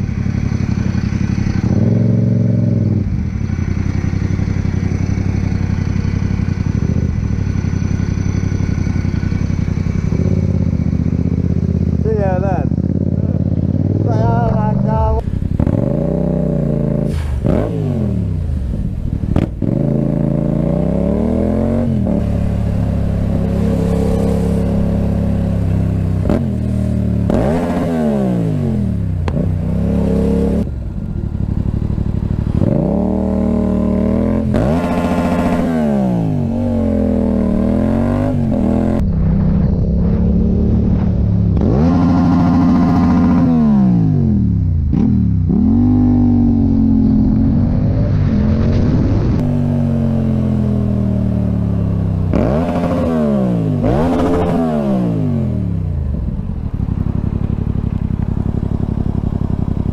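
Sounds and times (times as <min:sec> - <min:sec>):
motorcycle engine revving through gears: 0:00.0 - 0:59.9.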